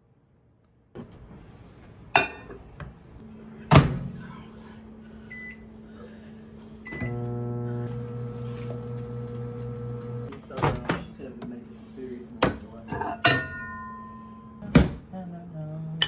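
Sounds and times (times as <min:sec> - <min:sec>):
microwave oven humming: 0:02.3 - 0:12.2.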